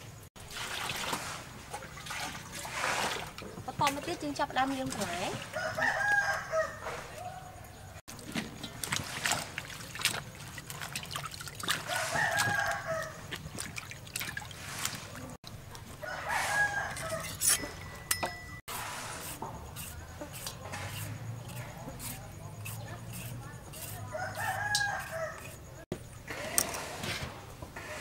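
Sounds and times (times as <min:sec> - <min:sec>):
water splashing in a bowl: 0:00.4 - 0:06.1, 0:08.1 - 0:15.9
rooster crowing: 0:05.4 - 0:08.0, 0:11.8 - 0:13.3, 0:16.0 - 0:18.1, 0:24.1 - 0:25.6.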